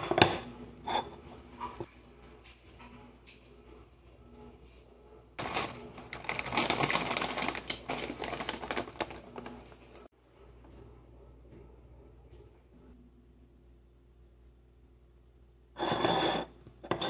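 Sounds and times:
plastic pouch crinkling: 5.4s - 10.1s.

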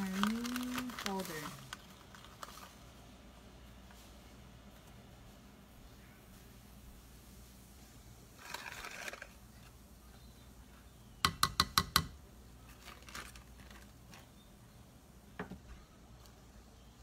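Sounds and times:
rustle: 0.0s - 11.0s.

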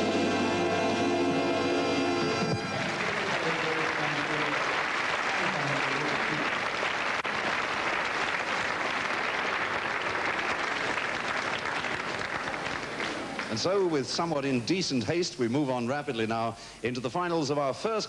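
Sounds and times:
audience applauding: 2.2s - 13.9s.

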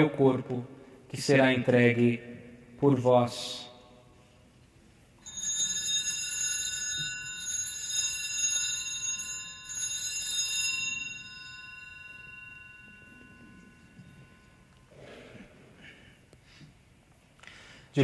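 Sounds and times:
small bells ringing: 5.2s - 16.3s.

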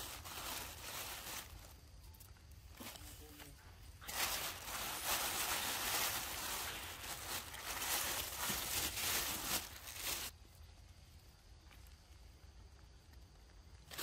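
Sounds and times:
plastic bag crinkling: 0.0s - 1.8s, 4.0s - 10.4s.

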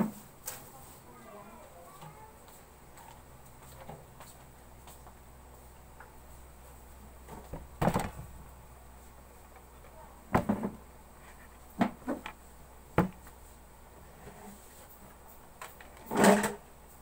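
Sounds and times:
low steady hum: 0.0s - 17.0s
household objects knocking: 10.3s - 10.8s.

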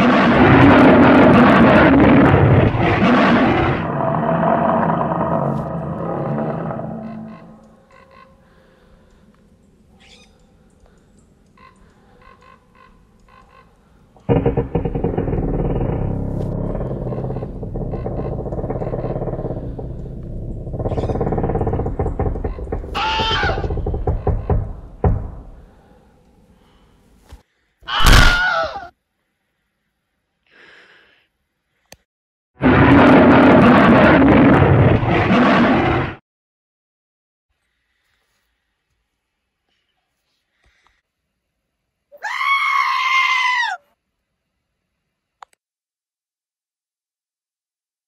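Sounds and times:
dull thuds: 14.3s - 25.7s
long high-pitched cry: 42.2s - 43.8s.

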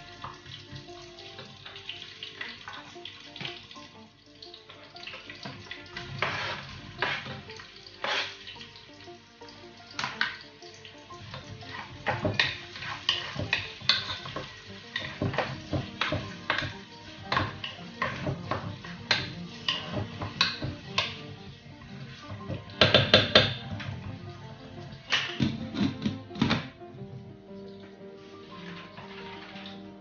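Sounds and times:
background music: 0.0s - 30.0s
food sizzling in a pot: 0.0s - 30.0s
wooden spoon stirring and scraping: 4.6s - 8.7s, 9.9s - 26.2s, 26.9s - 30.0s.

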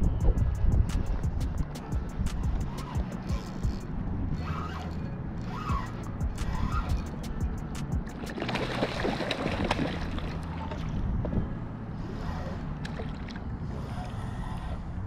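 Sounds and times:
wind buffeting microphone: 0.0s - 15.0s
fish splashing in water: 8.2s - 10.9s.

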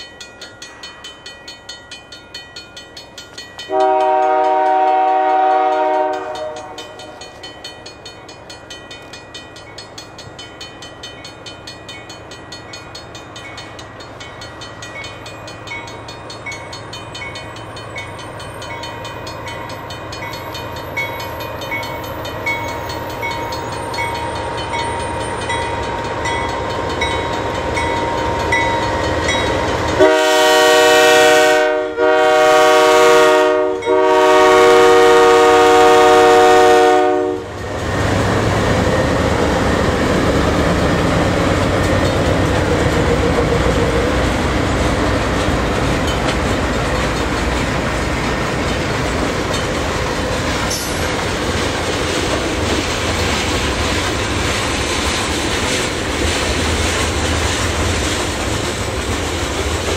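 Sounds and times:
freight train rumbling past: 0.0s - 59.9s
locomotive air horn blasts: 3.7s - 7.1s, 30.0s - 37.5s.

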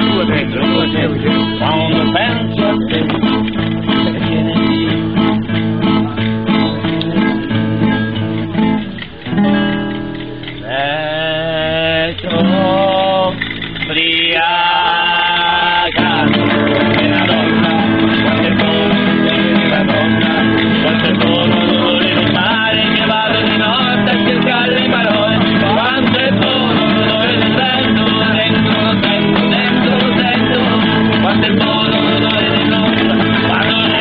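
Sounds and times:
song with guitar: 0.0s - 34.0s.

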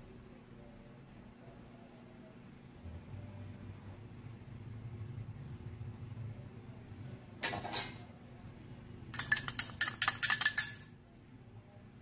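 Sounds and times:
metal spoon scraping glass bowl: 9.2s - 10.9s.

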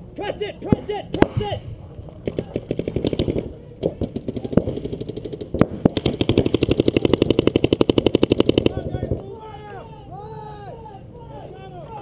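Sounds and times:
paintball guns firing rapidly: 2.2s - 9.2s.

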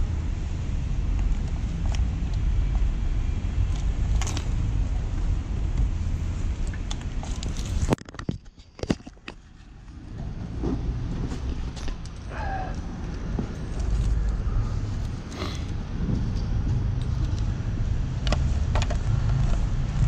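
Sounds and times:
wind on camera: 9.9s - 20.0s
sharp clicks and knocks: 18.2s - 19.6s.

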